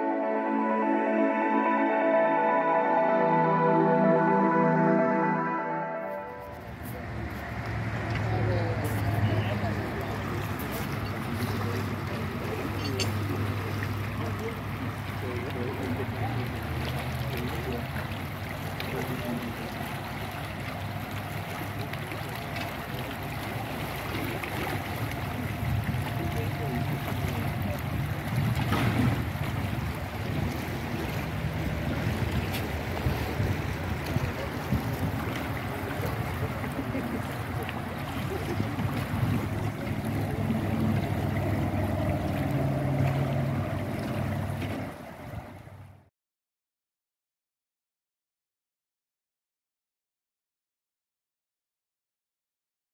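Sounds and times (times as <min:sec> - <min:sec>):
water gushing and churning: 0:06.2 - 0:46.1
low machine hum: 0:33.7 - 0:45.8.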